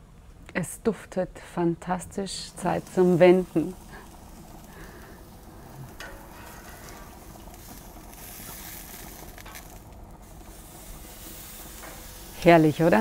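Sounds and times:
steak sizzling on a grill: 2.4s - 13.0s.

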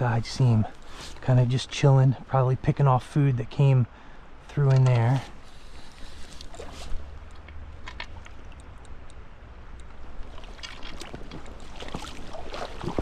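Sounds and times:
creek water rushing: 0.0s - 13.0s
low steady rumble: 0.0s - 13.0s
small water splashes: 5.5s - 8.8s, 9.9s - 13.0s.

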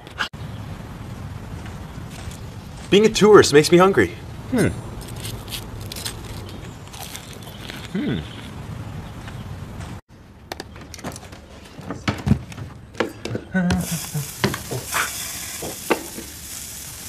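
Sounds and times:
sausages sizzling on grill: 13.8s - 17.0s.

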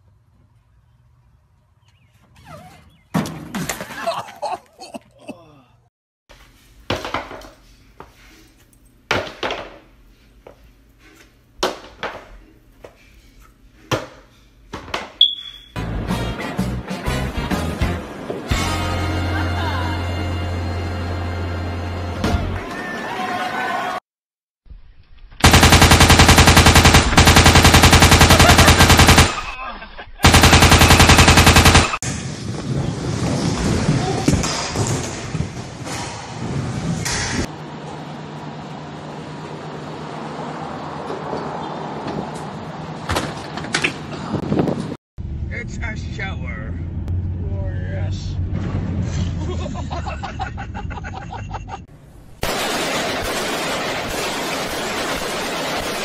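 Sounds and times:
machine gun bursts: 25.4s - 29.5s, 30.2s - 32.0s, 52.4s - 56.0s.

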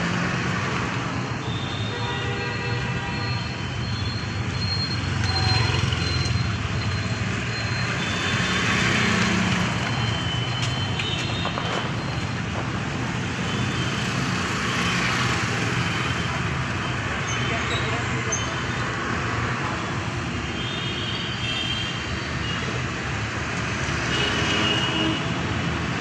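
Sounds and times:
steady hum of engines and tyres: 0.0s - 26.0s
motor scooters passing: 4.4s - 17.2s.

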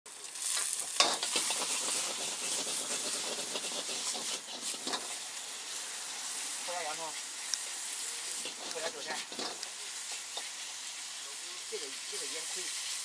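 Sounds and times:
rice sizzling in a wok: 0.1s - 13.0s
metal ladle scraping wok: 0.4s - 6.5s, 7.3s - 11.2s.

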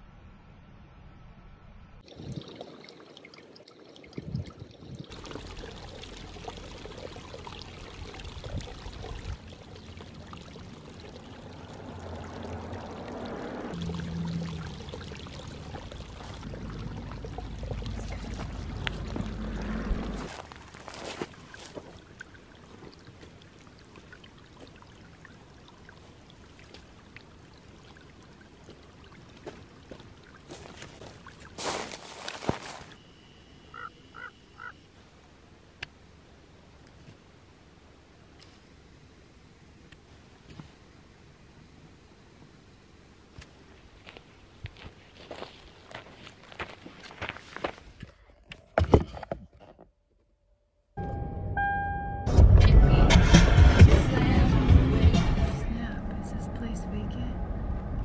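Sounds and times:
creek trickling over stones: 2.0s - 32.9s, 42.2s - 48.1s
footsteps on dry ground: 20.0s - 22.0s, 29.4s - 33.0s, 44.0s - 48.0s.

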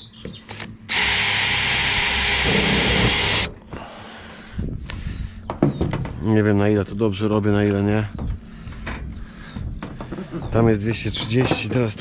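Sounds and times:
cordless drill driving a screw: 0.9s - 3.5s.

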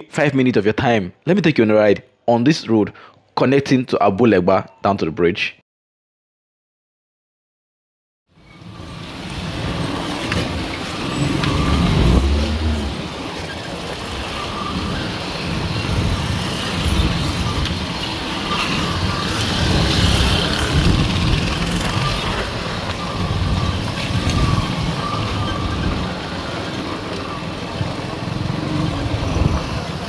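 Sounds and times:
street traffic: 8.3s - 30.0s
vehicle on dirt road: 8.4s - 30.0s.

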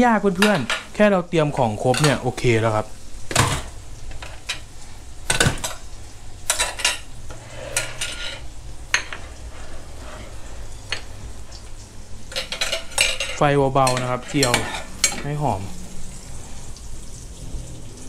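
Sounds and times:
food sizzling in a wok: 0.0s - 18.0s
clinks of dishes and utensils: 0.4s - 0.9s, 1.8s - 2.5s, 3.3s - 4.7s, 5.3s - 5.8s, 6.4s - 11.2s, 12.3s - 15.4s.

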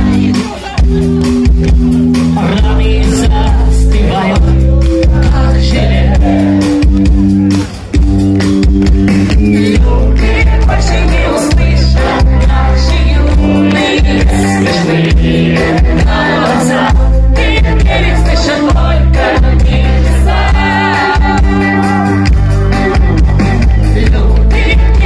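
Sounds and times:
person singing: 0.0s - 1.5s, 2.2s - 6.9s, 9.5s - 22.2s
live rock band: 0.0s - 25.0s.

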